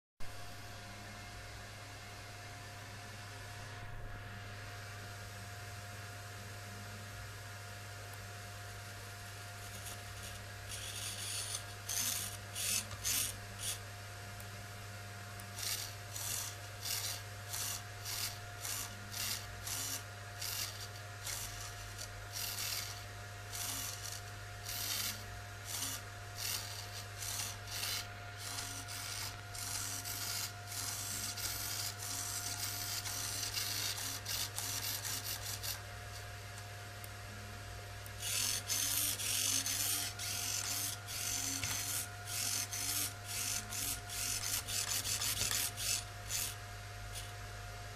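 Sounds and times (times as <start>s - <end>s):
steady low hum: 0.2s - 47.9s
servo motor gears whirring: 9.6s - 13.8s, 15.4s - 35.8s, 38.2s - 47.3s.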